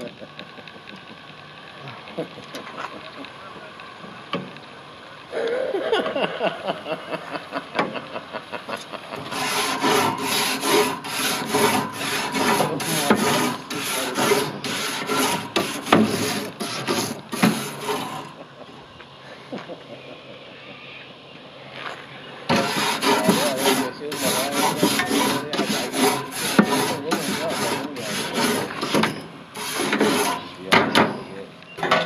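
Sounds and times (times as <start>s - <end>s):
wire brush scrubbing grill grates: 9.1s - 18.4s, 22.5s - 30.8s.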